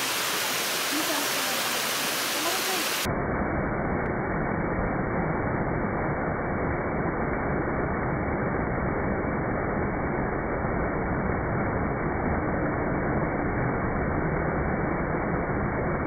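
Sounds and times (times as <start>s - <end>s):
water rushing down a cascade: 0.0s - 3.1s.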